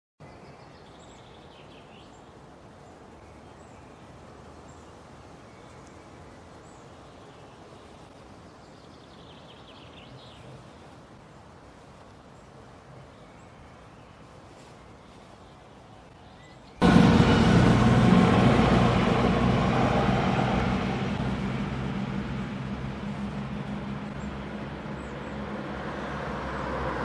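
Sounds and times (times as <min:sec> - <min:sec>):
birds chirping: 0:15.0 - 0:26.4.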